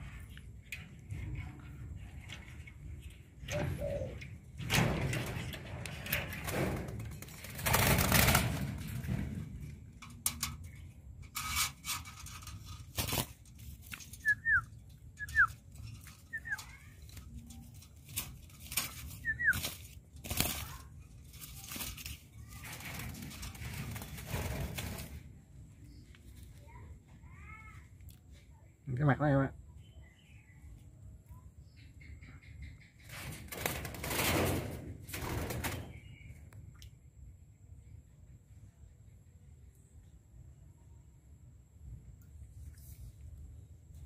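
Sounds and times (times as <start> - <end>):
bird cage rustling and knocking: 4.6 - 14.6, 15.3 - 25.3
bird chirping: 14.1 - 17.4, 19.0 - 19.9, 29.7 - 33.2.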